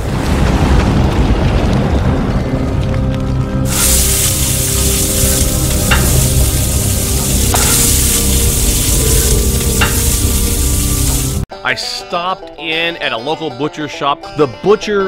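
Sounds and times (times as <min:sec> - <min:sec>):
food sizzling on a griddle: 0:03.7 - 0:11.4.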